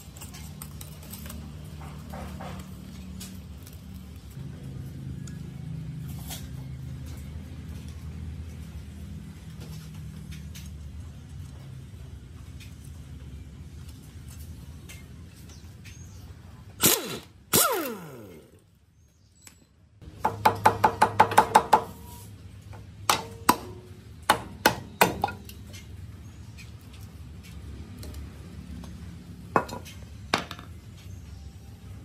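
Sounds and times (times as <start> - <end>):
metal clanks and knocks: 0.1 - 3.1
impact wrench hammering: 20.2 - 22.0.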